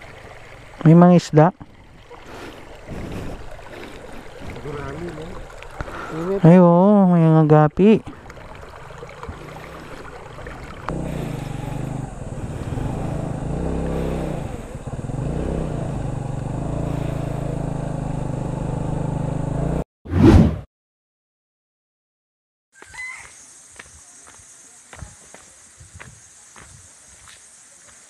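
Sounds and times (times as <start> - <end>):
vehicle engine running: 10.6 - 19.8.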